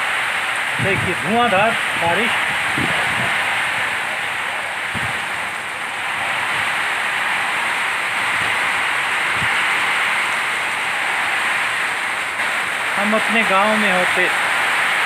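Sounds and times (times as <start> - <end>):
heavy rain hissing on road: 0.0 - 15.0.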